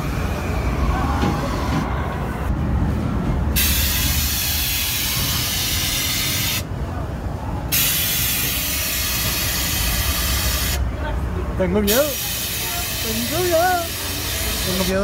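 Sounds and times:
steady low rumble: 2.0s - 13.0s
pressurised gas hissing: 3.6s - 6.6s.

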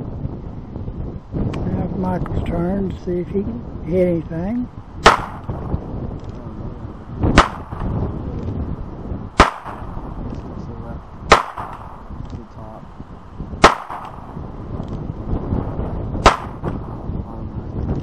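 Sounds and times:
pistol shots echoing: 5.0s - 5.5s, 7.4s - 7.9s, 9.4s - 10.0s, 11.3s - 12.1s, 13.6s - 14.3s, 16.2s - 16.8s.

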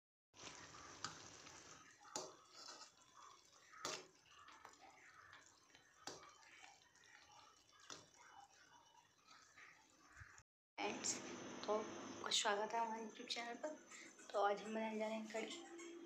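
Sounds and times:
thick liquid being stirred: 0.4s - 10.4s.

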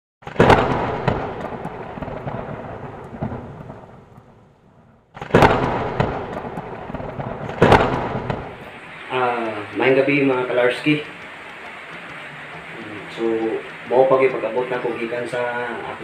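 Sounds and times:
explosion blasts rumbling: 0.2s - 11.5s.

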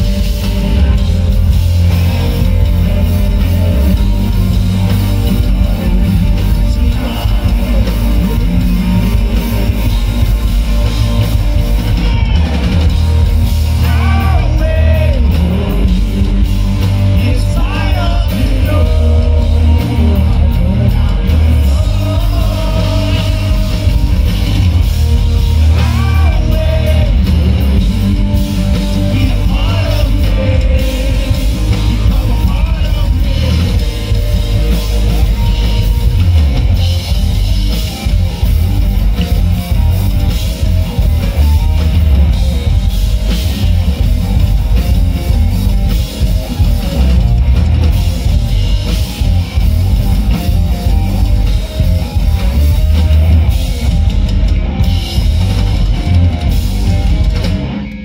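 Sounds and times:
live rock band: 0.0s - 58.0s
man singing lead vocal: 5.2s - 10.2s, 13.8s - 24.6s, 25.6s - 34.2s.

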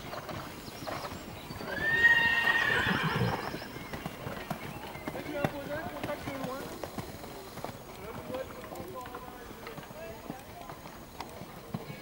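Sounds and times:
horse neighing: 1.6s - 3.7s.

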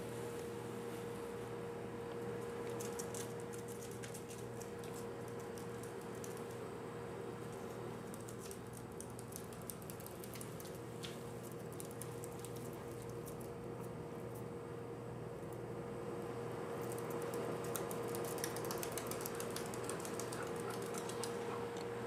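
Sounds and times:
steady low hum: 0.0s - 22.0s
guinea pig claws pattering on floor: 2.1s - 6.7s, 7.4s - 14.5s, 16.8s - 21.9s.

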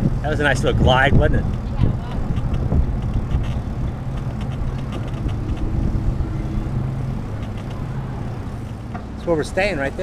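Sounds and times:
bicycle rolling on pavement: 0.0s - 10.0s
small rattling clicks: 1.5s - 5.7s.

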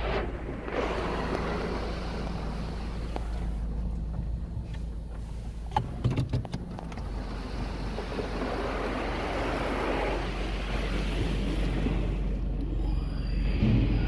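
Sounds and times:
high-pressure water spraying on car: 0.0s - 3.8s, 7.0s - 12.4s
steady low hum: 0.0s - 14.0s.

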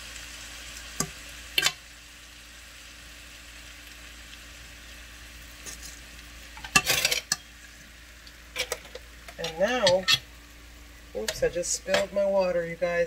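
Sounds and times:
rice sizzling in a pan: 0.0s - 13.0s
fork scraping and clinking on pan: 6.6s - 7.5s, 8.6s - 10.2s.

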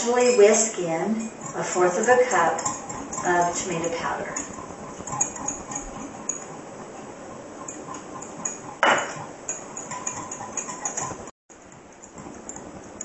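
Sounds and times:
whisk clinking against glass: 0.0s - 6.6s, 7.6s - 13.0s
metal cup knocking on stone counter: 8.8s - 9.2s.

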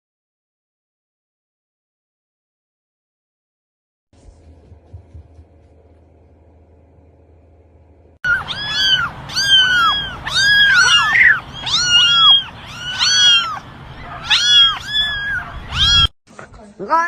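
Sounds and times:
kittens mewing: 8.2s - 16.1s.

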